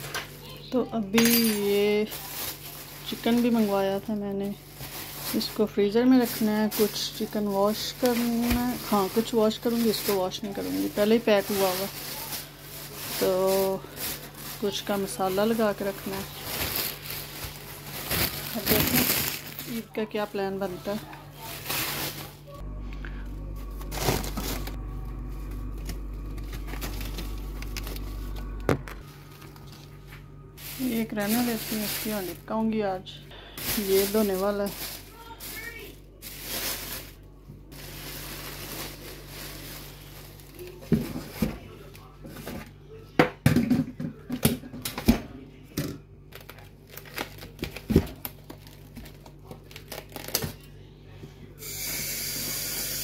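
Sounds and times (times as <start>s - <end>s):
freezer humming: 0.0s - 53.0s
cling film crinkling and tearing: 2.1s - 5.6s, 6.2s - 19.9s, 21.4s - 22.5s, 23.6s - 30.0s, 33.6s - 40.9s, 46.3s - 50.6s.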